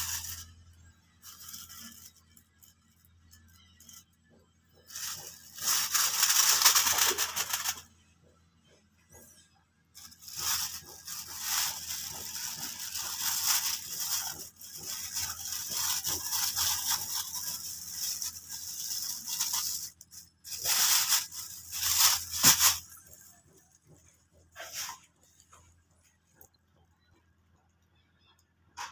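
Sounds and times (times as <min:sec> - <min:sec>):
plastic bag crinkling: 0:00.0 - 0:04.0, 0:04.8 - 0:07.9, 0:10.0 - 0:24.0.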